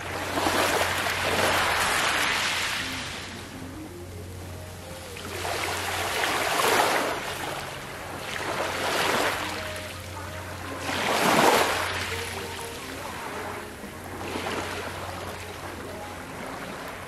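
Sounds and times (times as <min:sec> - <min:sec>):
sea waves breaking on gravel beach: 0:00.0 - 0:02.9.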